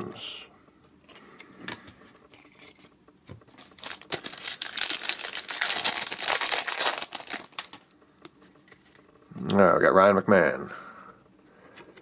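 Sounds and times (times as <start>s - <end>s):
foil wrapper crinkling: 3.5s - 8.0s.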